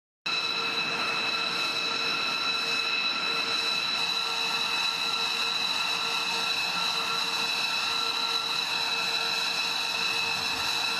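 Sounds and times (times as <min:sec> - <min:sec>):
jet engines idling whine: 0:00.3 - 0:10.9.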